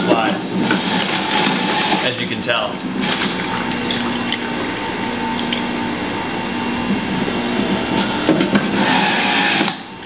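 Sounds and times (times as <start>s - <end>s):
juicer motor humming: 0.0s - 10.0s
juice trickling into bowl: 2.0s - 5.8s.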